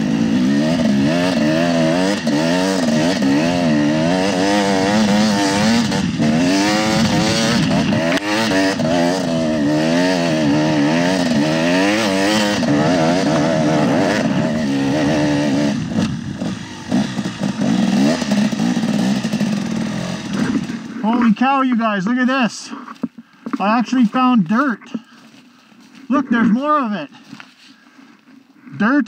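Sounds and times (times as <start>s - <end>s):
dirt bike engine revving: 0.0s - 22.2s.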